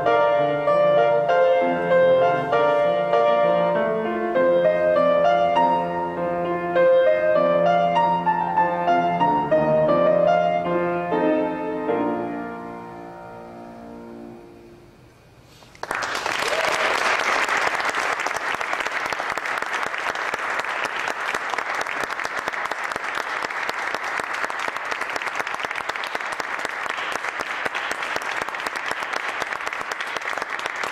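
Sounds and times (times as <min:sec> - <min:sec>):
grand piano chords: 0:00.0 - 0:15.2
audience applause: 0:15.7 - 0:30.9.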